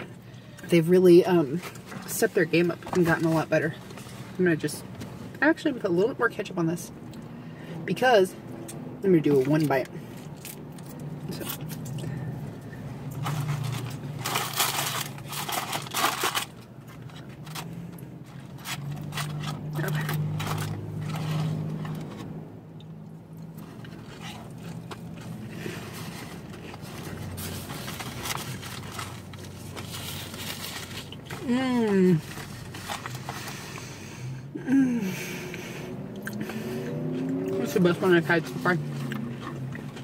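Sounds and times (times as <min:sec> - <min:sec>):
chewing crispy fried food: 0:09.6 - 0:12.5, 0:22.8 - 0:31.4, 0:38.8 - 0:40.0.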